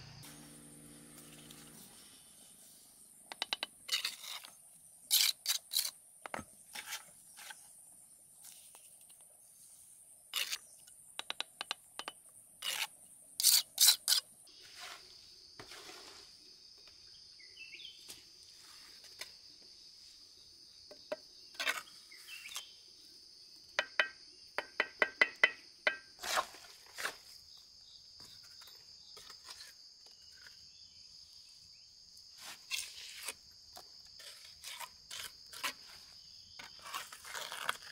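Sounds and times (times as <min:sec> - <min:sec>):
trowel scraping mortar: 0:03.3 - 0:07.6, 0:10.3 - 0:10.9, 0:12.6 - 0:16.3, 0:21.5 - 0:22.7, 0:25.2 - 0:27.2, 0:32.4 - 0:33.4, 0:34.2 - 0:37.9
high insect trill: 0:12.1 - 0:37.9.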